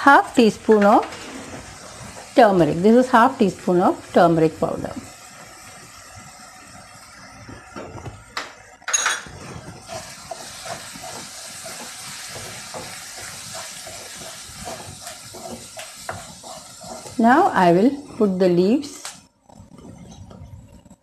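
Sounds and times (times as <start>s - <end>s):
food sizzling in a wok: 0.0s - 19.3s
spatula scraping and knocking pan: 0.7s - 2.6s, 8.9s - 19.0s.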